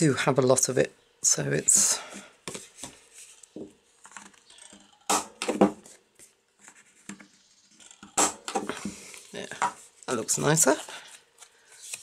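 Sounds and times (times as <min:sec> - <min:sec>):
sharp knocks of a punch: 0:05.1 - 0:05.8.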